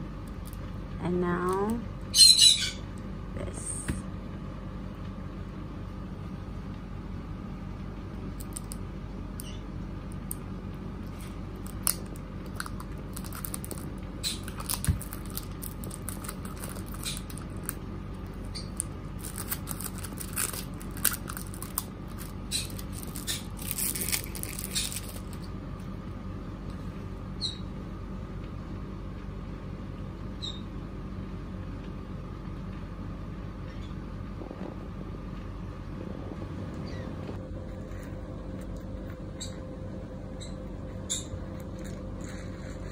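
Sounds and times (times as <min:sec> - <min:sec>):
low hum: 0:00.0 - 0:42.9
plastic film crinkling: 0:11.2 - 0:17.8, 0:18.7 - 0:25.5.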